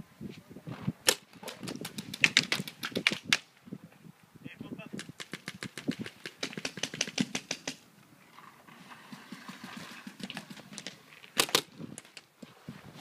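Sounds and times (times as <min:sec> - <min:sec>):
paintball marker firing: 0:05.0 - 0:07.8.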